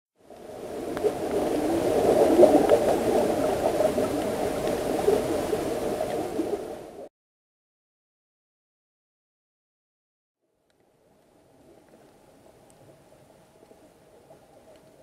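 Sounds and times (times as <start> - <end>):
underwater bubbling rush: 0.2 - 7.1
faint clicks: 10.6 - 15.0.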